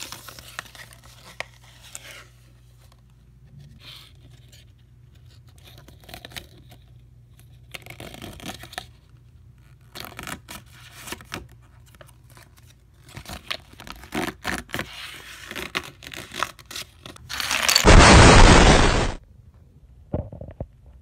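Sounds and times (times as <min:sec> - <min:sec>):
loud rush of noise: 0:17.8 - 0:19.2.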